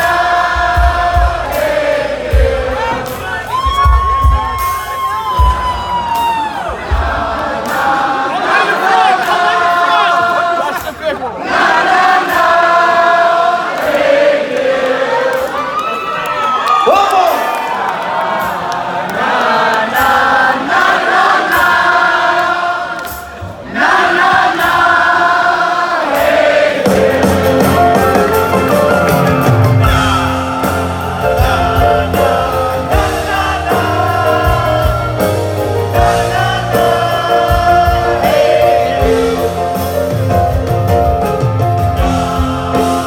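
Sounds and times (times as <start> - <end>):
men singing together: 0.0 - 3.4, 6.9 - 15.5, 18.4 - 28.4, 29.8 - 40.1, 41.9 - 43.0
live band playing: 0.0 - 43.0.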